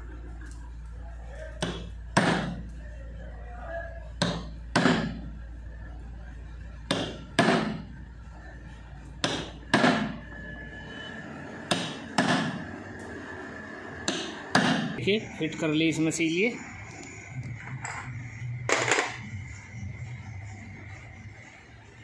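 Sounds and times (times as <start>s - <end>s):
hammer striking metal: 1.6s - 2.6s, 4.2s - 5.2s, 6.9s - 7.8s, 9.2s - 10.2s, 11.7s - 12.7s, 14.1s - 15.0s.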